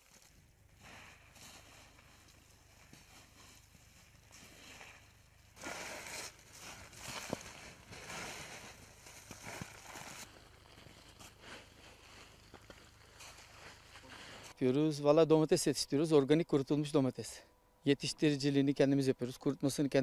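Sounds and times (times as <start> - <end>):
dried tomatoes rustling and crackling: 0.0 - 14.6.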